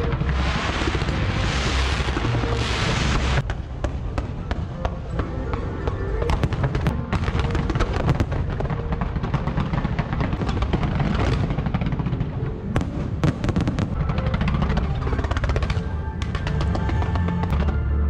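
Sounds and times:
deep rumble: 0:00.0 - 0:04.5
fireworks bangs and crackling: 0:00.0 - 0:18.0.

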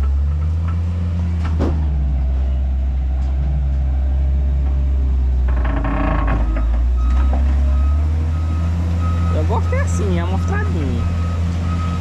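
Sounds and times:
diesel machinery droning: 0:00.0 - 0:12.0
metallic creaking and clanking: 0:04.6 - 0:07.9.

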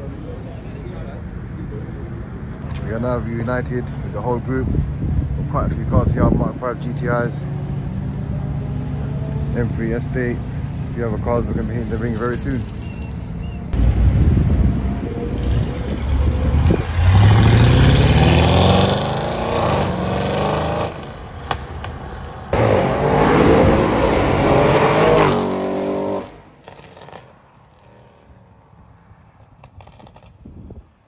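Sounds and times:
cars accelerating hard: 0:13.7 - 0:27.3.

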